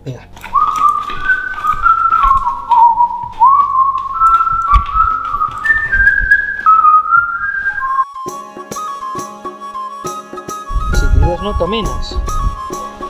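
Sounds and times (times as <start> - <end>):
person whistling a tune: 0.5 - 13.0
footsteps on stairs: 1.4 - 7.3.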